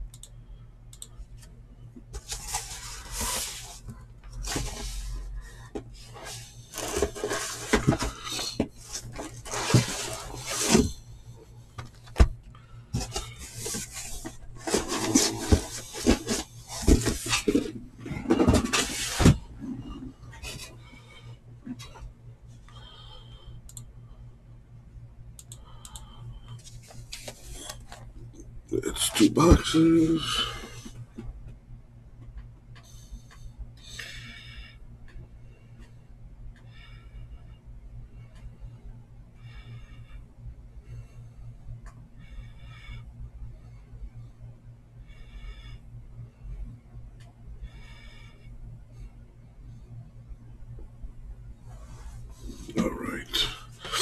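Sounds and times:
objects rustling and scraping on desk: 2.1 - 11.0, 12.9 - 20.8, 26.6 - 28.1, 51.7 - 52.8.

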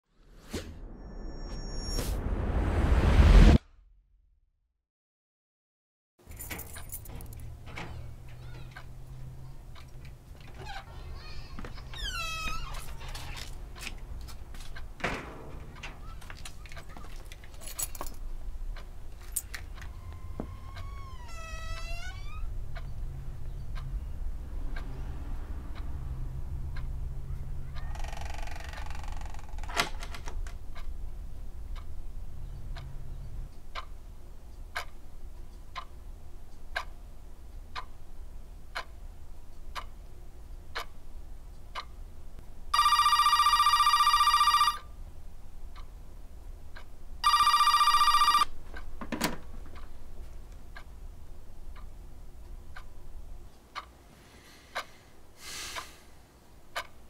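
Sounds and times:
low hum: 0.3 - 4.2
clock ticking: 22.7 - 27.8, 31.7 - 40.1, 40.7 - 41.0, 41.6 - 42.1
telephone ringing with electronic trill: 42.8 - 44.9, 47.2 - 48.5.

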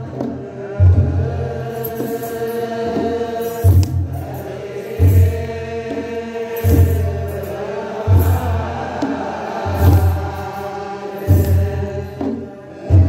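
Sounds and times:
group chanting in unison: 0.0 - 13.0
deep drum beat: 6.7 - 7.4.

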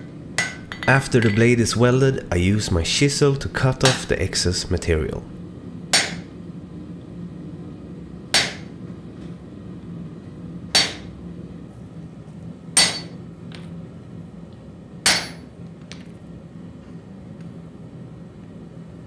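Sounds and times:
hammer striking chisel on metal: 5.9 - 6.2, 8.4 - 8.7, 10.8 - 11.1, 12.8 - 13.2, 15.1 - 15.4.

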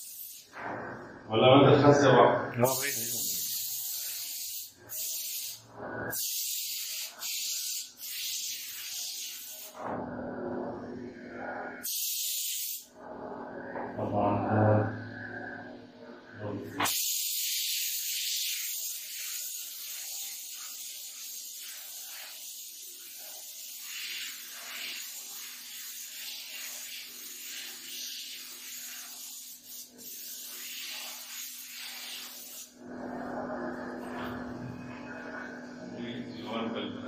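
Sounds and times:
paint spray gun hissing: 2.7 - 9.8, 11.8 - 12.8, 16.8 - 32.7.

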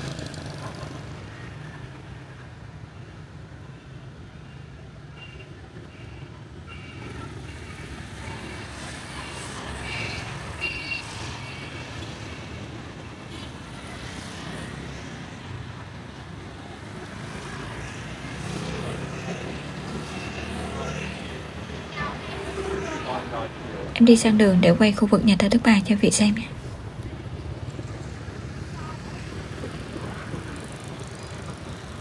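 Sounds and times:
vehicle engines running: 0.0 - 2.3, 12.0 - 32.0.

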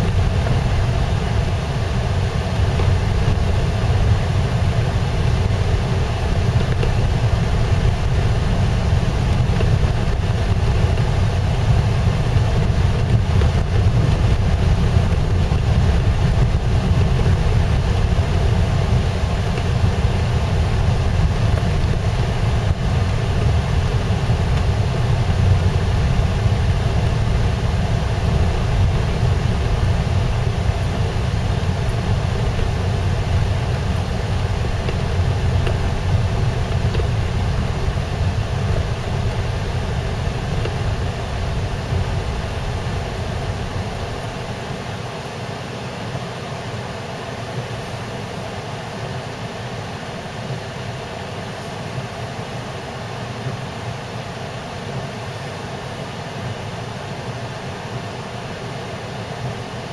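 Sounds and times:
car engine and road rumble: 0.0 - 44.7.

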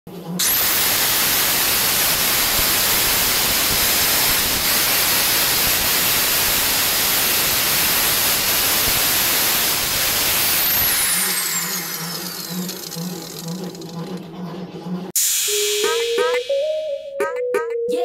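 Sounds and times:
angle grinder whining: 0.2 - 14.7.

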